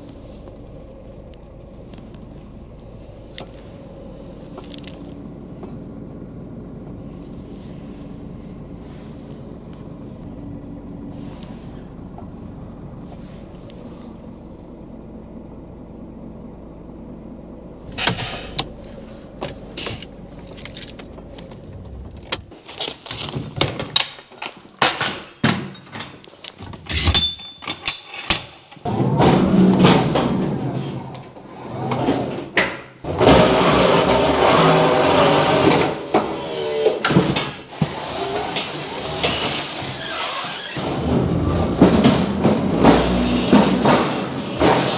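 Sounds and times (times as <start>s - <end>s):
low hum: 0.0s - 22.6s
crates and pallets clattering: 17.9s - 44.9s
pallet jack rattling over floor: 33.1s - 44.9s.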